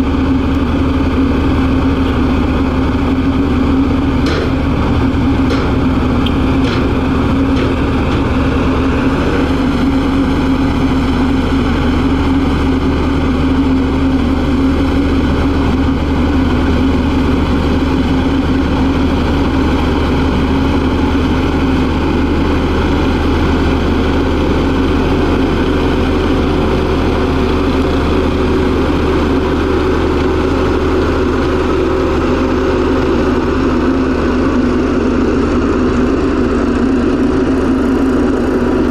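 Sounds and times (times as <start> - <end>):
diesel engine droning: 0.0 - 38.9.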